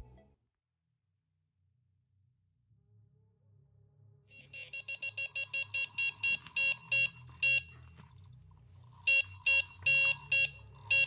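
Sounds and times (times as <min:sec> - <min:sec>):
bite alarm beeps: 0:04.4 - 0:07.8, 0:09.1 - 0:11.0.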